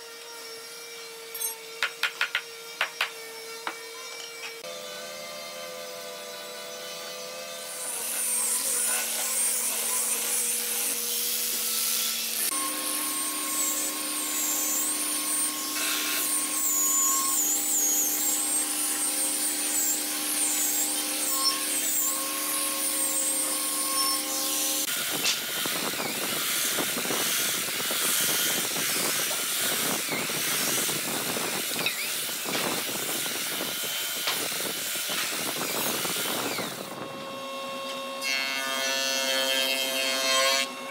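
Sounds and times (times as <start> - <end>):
orbital sander whine: 0.0 - 38.2
belt sander sanding: 5.4 - 36.8.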